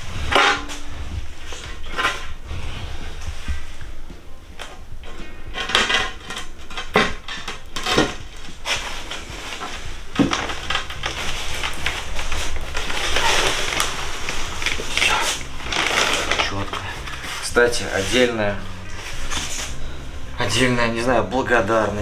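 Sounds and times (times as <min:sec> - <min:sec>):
background music: 0:00.0 - 0:22.0
hard objects clinking and scraping: 0:05.1 - 0:19.8.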